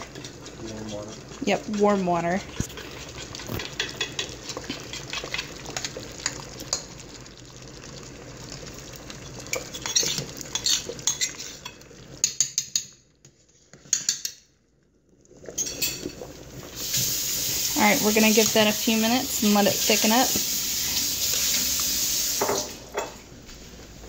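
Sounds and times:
utensil scraping ceramic dish: 9.6 - 11.7
steaming pot hiss: 16.3 - 22.9.

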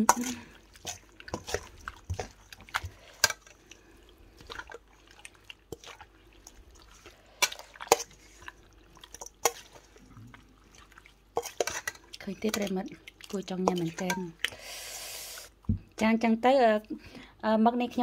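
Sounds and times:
wet squelching of salad tossed: 0.0 - 14.7
utensil tapping steel bowl: 13.6 - 14.4.

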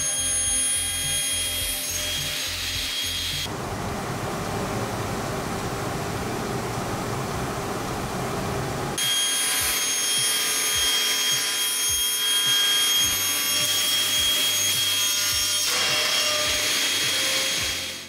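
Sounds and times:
table saw cutting wood: 0.0 - 3.5, 9.0 - 18.0.

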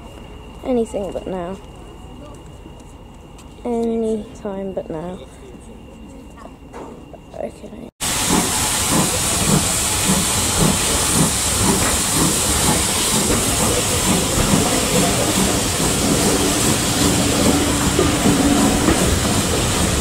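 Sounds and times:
steam train hissing and chuffing: 8.0 - 20.0.

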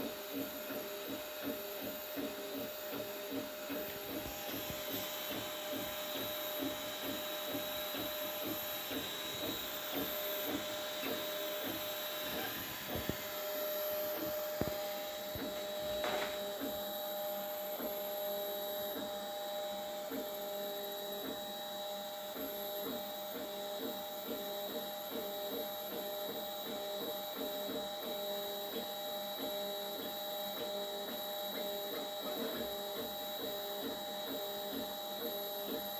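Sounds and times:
steady hum: 0.0 - 35.9
stepper motors whining: 0.0 - 35.9.

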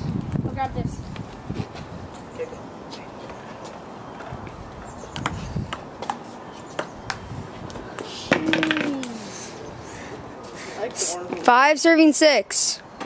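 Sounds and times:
person crying out: 8.3 - 9.3.

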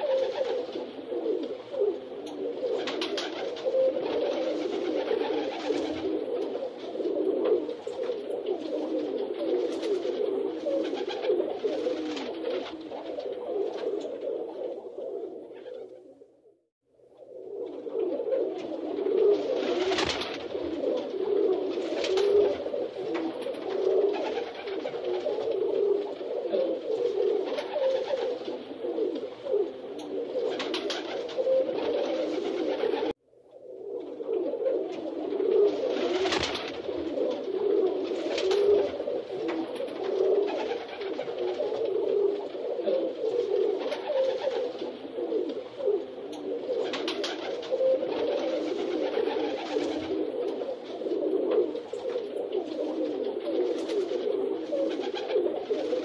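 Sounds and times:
pigeons cooing: 0.0 - 16.5, 17.1 - 56.0
wing flaps: 2.7 - 14.2, 18.6 - 28.6, 30.4 - 33.1, 35.4 - 42.5, 46.8 - 50.5.

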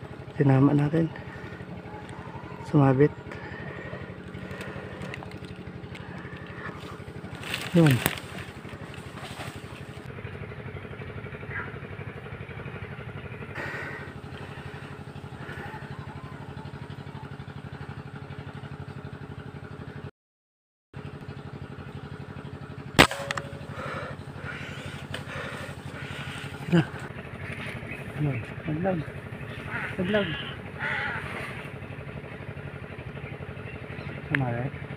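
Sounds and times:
small engine droning: 0.0 - 20.1, 21.0 - 34.9
air rifle shot: 23.0 - 23.7.

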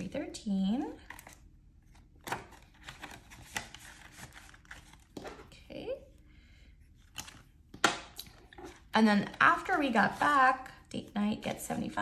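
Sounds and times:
paper banknotes rustling: 2.5 - 5.2.

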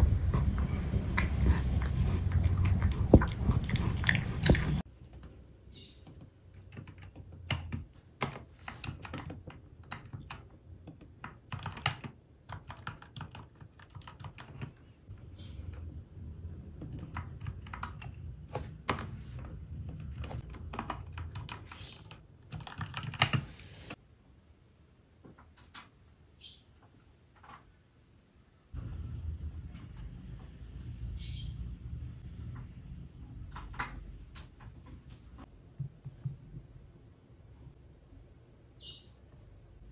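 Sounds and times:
mechanical keyboard typing: 6.6 - 14.8, 16.7 - 19.2, 19.9 - 23.5.

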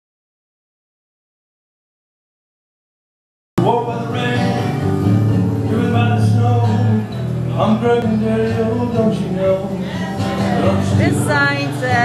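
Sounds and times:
man singing: 3.6 - 12.0.

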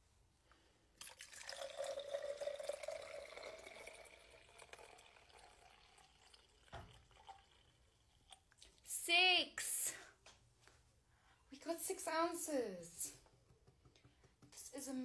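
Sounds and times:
milk pouring into plastic bottle: 1.0 - 8.8.

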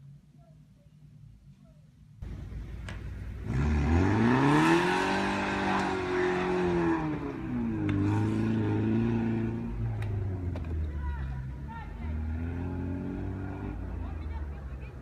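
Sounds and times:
car engine revving hard: 3.4 - 9.9, 12.0 - 14.0.

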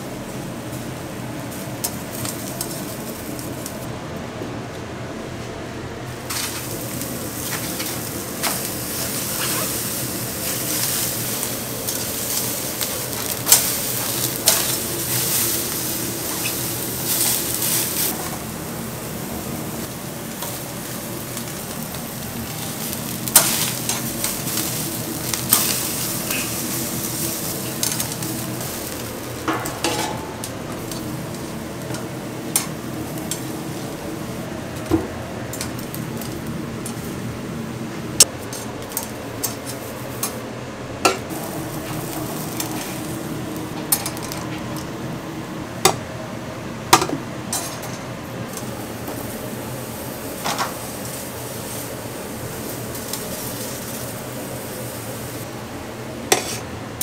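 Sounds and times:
food sizzling on a grill: 0.0 - 3.9, 6.1 - 40.6, 41.2 - 46.0, 46.9 - 55.6, 56.2 - 56.7
metal tongs clicking on grate: 11.9 - 15.3, 27.6 - 28.3, 29.0 - 33.5, 35.5 - 37.0, 38.4 - 40.4.

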